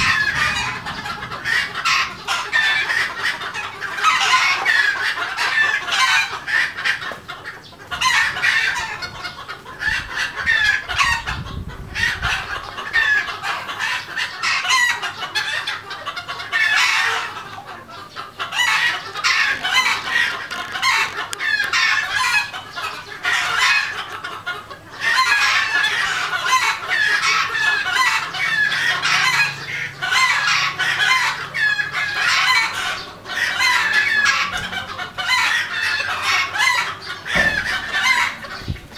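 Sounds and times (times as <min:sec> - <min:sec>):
low rumble: 0:00.0 - 0:02.6
chickens clucking and chirping: 0:00.0 - 0:38.9.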